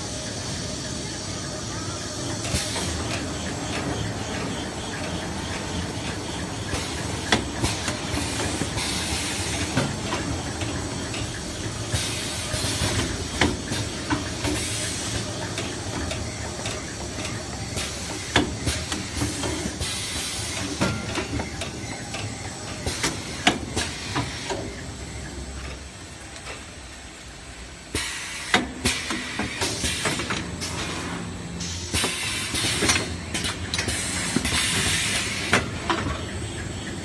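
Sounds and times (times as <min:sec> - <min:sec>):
machine running: 0:00.0 - 0:26.2.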